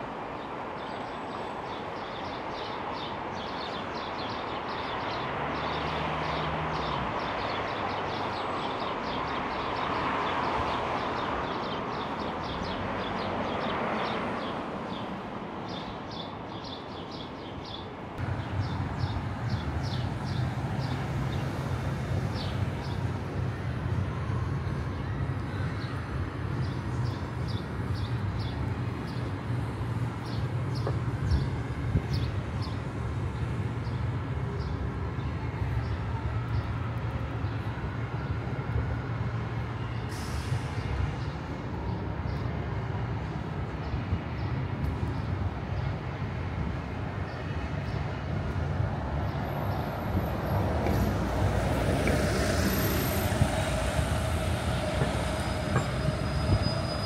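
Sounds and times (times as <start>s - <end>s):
city street traffic rumble: 0.0s - 57.0s.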